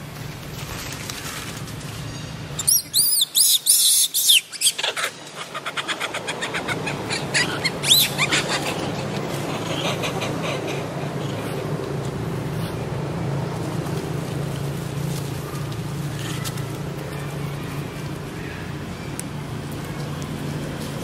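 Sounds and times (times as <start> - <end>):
monkey screaming: 2.6 - 11.4.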